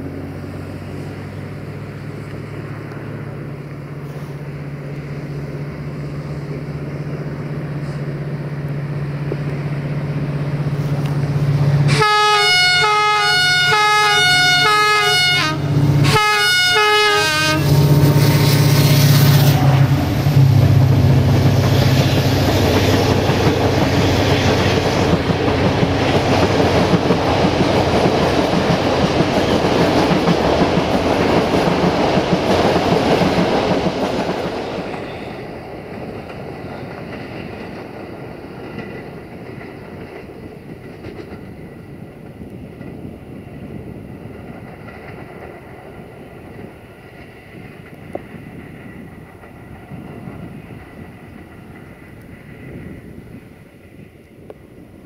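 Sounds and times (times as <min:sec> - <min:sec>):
locomotive engine drone: 0:00.0 - 0:55.0
train wheel and rail rumble: 0:00.0 - 0:55.0
train horn: 0:11.8 - 0:18.1.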